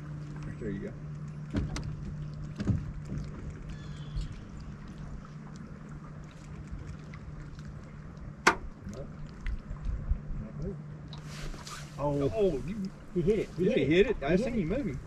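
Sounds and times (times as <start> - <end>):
water washing against boat: 0.0 - 15.0.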